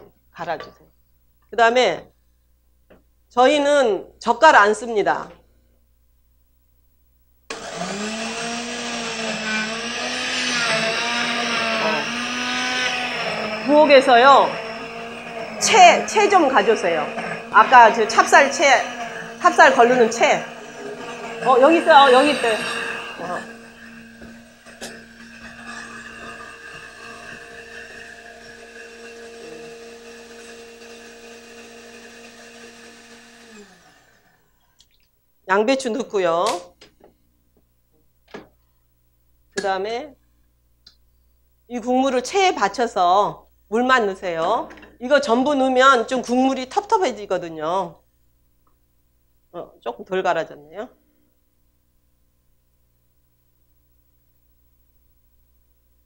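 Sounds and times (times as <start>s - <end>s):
blender motor running: 7.5s - 34.6s.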